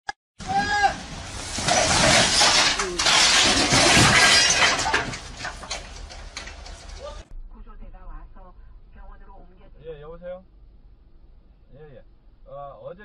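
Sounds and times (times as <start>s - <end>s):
blocks crashing down: 0.4s - 7.2s
clatter of pieces settling: 1.1s - 7.2s.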